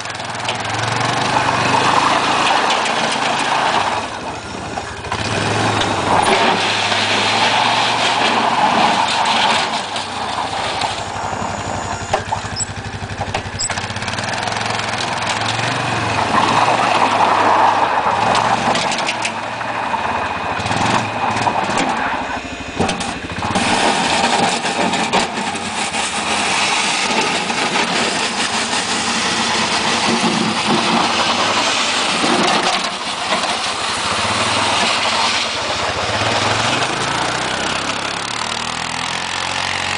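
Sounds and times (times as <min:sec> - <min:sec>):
quad engine under load: 0:00.0 - 0:39.9.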